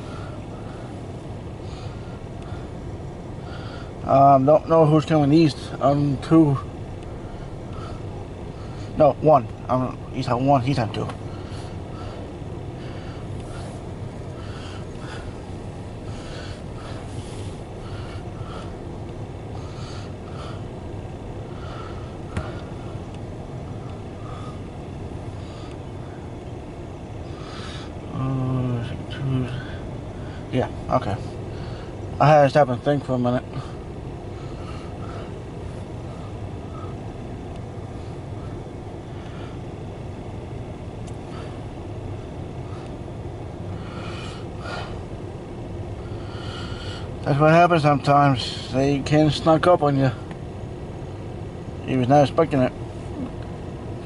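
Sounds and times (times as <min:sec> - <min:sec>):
low vehicle rumble inside car: 0:00.0 - 0:54.0.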